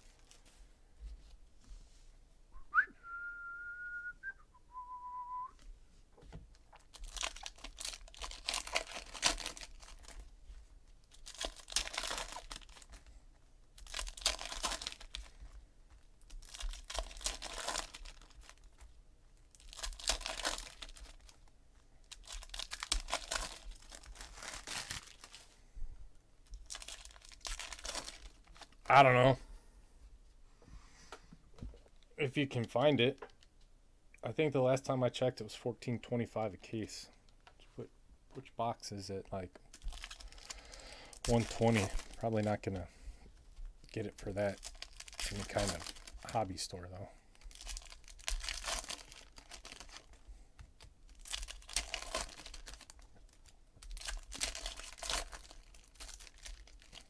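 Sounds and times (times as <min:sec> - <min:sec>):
two-note whistle-like tone: 0:02.6 - 0:05.5
foil wrappers tearing and crinkling: 0:06.8 - 0:10.3, 0:11.1 - 0:13.0, 0:13.8 - 0:15.4, 0:16.2 - 0:18.8, 0:19.5 - 0:25.5, 0:26.5 - 0:28.8, 0:39.7 - 0:42.8, 0:43.9 - 0:46.5, 0:47.3 - 0:50.2, 0:51.1 - 0:57.0.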